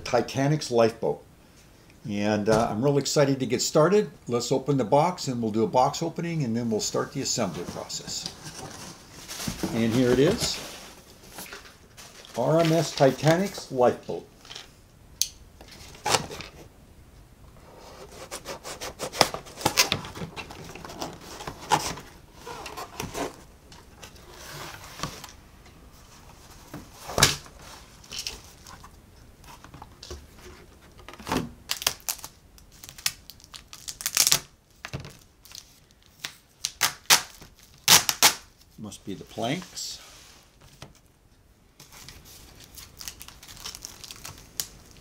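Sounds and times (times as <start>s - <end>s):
plastic wrap crinkling: 31.7s - 38.7s, 41.9s - 45.0s.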